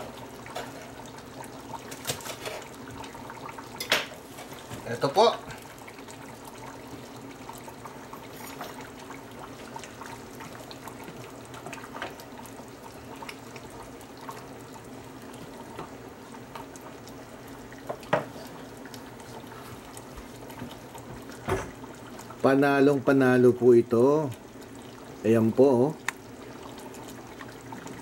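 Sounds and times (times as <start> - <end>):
soup bubbling in a pot: 0.0 - 28.0.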